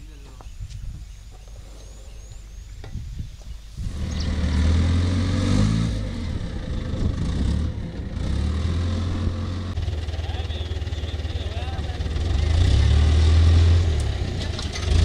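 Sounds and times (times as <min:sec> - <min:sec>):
wheel loader diesel engine revving: 0:03.8 - 0:15.0.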